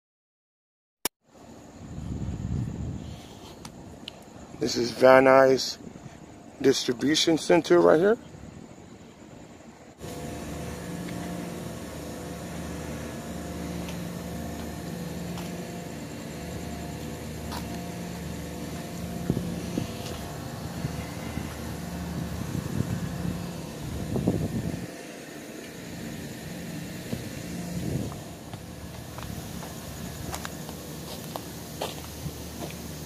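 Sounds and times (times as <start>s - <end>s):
machinery humming: 4.3s - 33.0s
scuffing noise: 10.0s - 24.8s, 27.0s - 33.0s.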